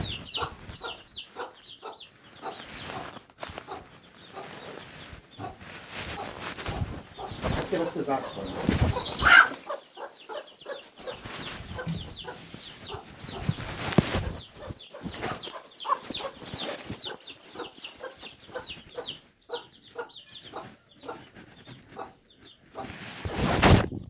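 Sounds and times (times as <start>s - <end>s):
chickens clucking: 0.0s - 23.9s
high chick peeps: 0.0s - 23.9s.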